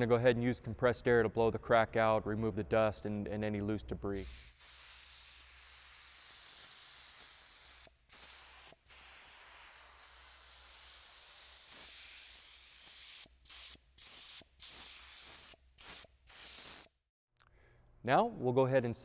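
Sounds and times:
compressed air hissing from nozzle: 4.2s - 17.0s.

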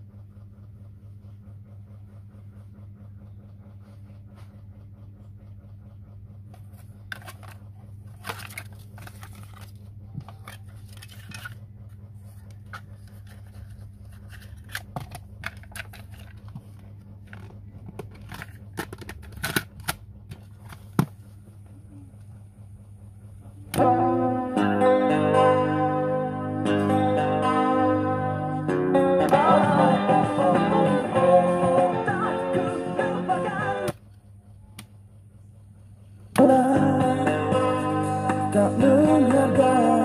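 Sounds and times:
low hum: 0.0s - 40.0s
inlay card rustling: 6.6s - 21.4s
plastic case clacking: 14.1s - 21.2s
guitar-led song: 23.8s - 33.9s, 36.4s - 40.0s.

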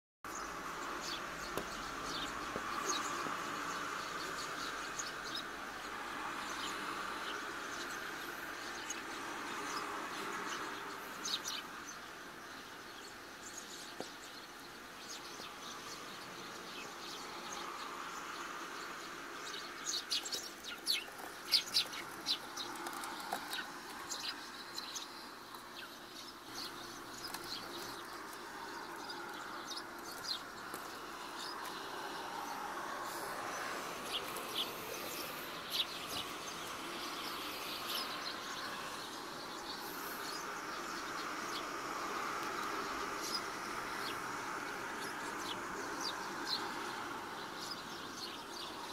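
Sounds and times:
sparrows chirping: 0.3s - 48.9s
rain hiss: 30.5s - 47.8s.

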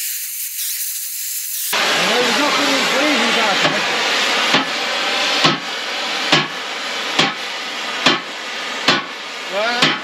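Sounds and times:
hammer striking steel: 5.4s - 5.7s, 6.3s - 6.6s, 7.2s - 7.4s, 8.0s - 9.1s, 9.8s - 10.0s.

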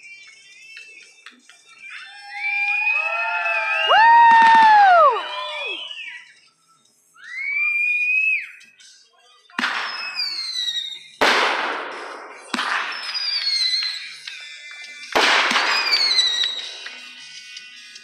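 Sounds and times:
firework hissing and whistles: 1.8s - 18.0s
firework bangs: 4.0s - 5.3s, 9.6s - 14.4s, 15.0s - 17.2s.

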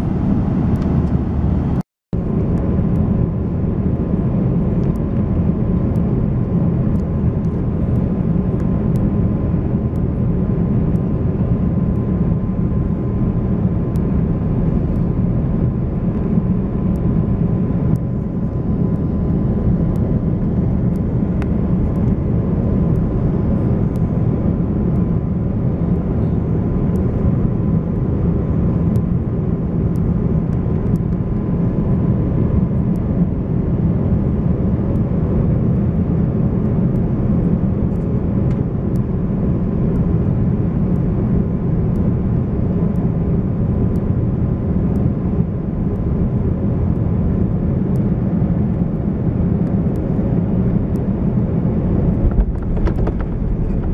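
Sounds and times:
faint steady hum: 0.0s - 53.9s
jet engines roaring: 0.0s - 53.9s
rushing air: 50.2s - 53.9s.

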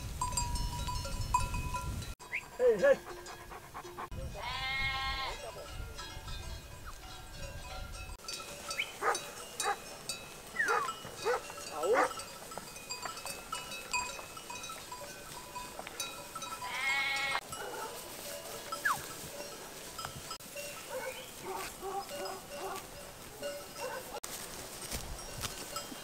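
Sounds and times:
sheep bells clinking: 0.0s - 26.0s
sheep bleating: 4.3s - 5.5s, 16.6s - 17.5s.

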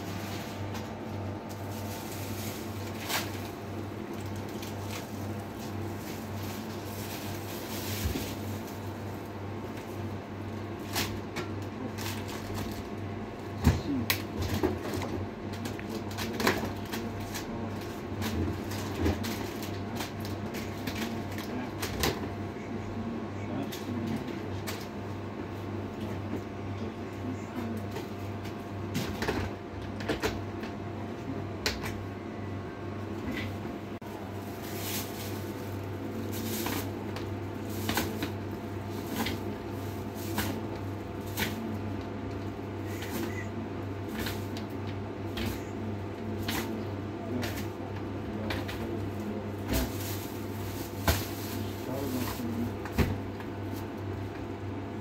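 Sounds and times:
plastic bags rustling: 0.0s - 10.0s, 34.0s - 43.4s, 48.6s - 52.8s
steady low hum: 0.0s - 55.0s.

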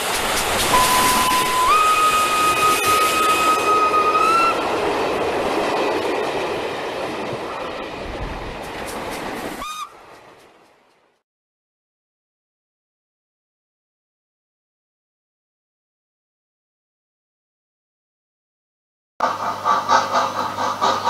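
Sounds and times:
train hiss and rumble: 0.0s - 11.2s, 19.2s - 21.0s
steam train whistle: 0.6s - 4.7s, 9.6s - 10.0s.

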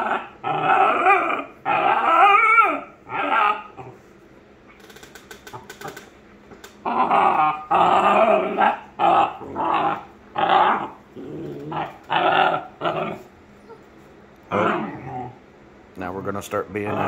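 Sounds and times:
puppy growly vocalizing: 0.0s - 4.1s, 6.8s - 15.5s, 16.7s - 17.0s.

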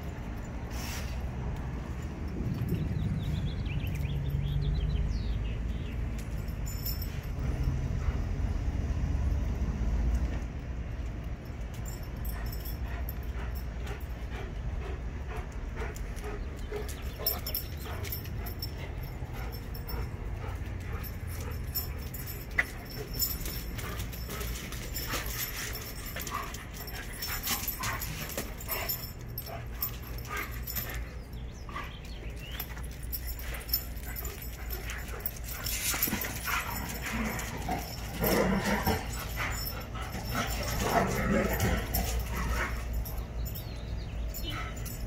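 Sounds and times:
collar tags ticking: 10.0s - 45.0s.

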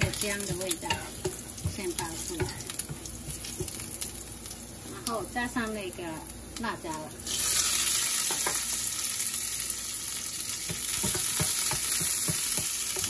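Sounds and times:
wooden spoon knocking pan: 0.0s - 3.8s, 10.6s - 13.0s
frying in hot oil: 0.0s - 13.0s.

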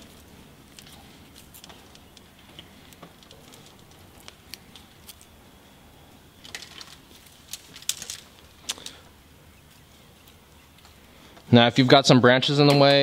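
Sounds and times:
foliage rustling: 0.0s - 12.0s
small wire clicks: 0.7s - 5.3s, 6.4s - 9.0s.

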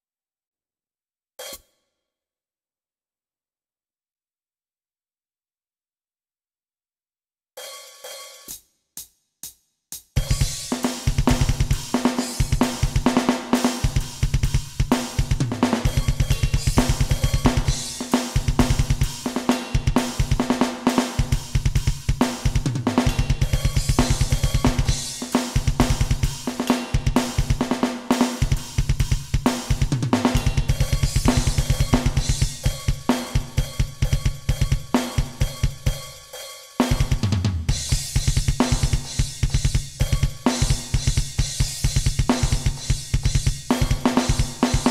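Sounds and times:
double kick drum strokes: 10.0s - 36.2s, 36.8s - 44.9s
cymbals: 10.2s - 43.1s.

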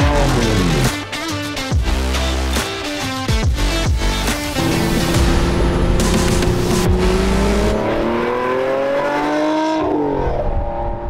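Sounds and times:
car engine accelerating: 4.4s - 11.0s.

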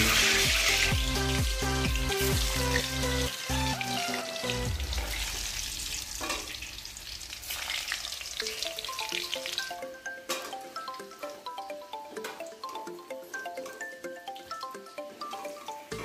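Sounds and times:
light background music: 0.0s - 6.4s, 8.1s - 16.0s
potatoes sizzling in hot oil: 0.0s - 9.9s.

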